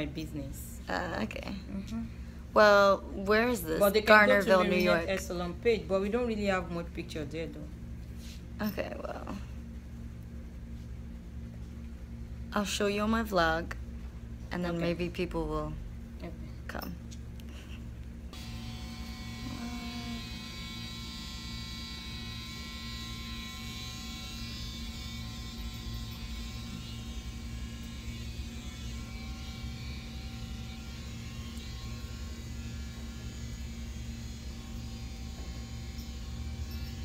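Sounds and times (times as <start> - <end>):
small motor buzzing hum: 17.6 - 37.0.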